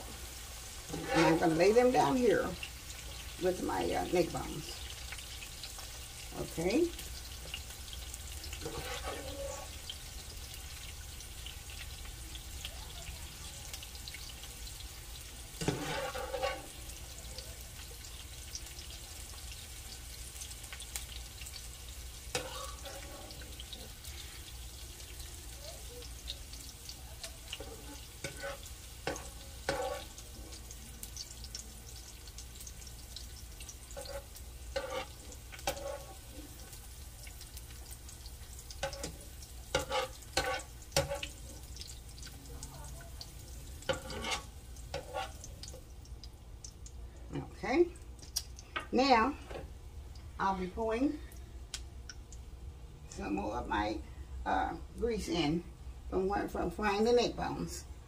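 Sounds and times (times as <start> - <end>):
oil sizzling in a skillet: 0.0 - 58.0
spoon scraping a pan: 0.3 - 3.3, 4.8 - 10.0, 15.5 - 17.0, 22.2 - 24.6, 27.3 - 30.3, 33.6 - 37.4, 38.7 - 41.4, 43.8 - 45.5.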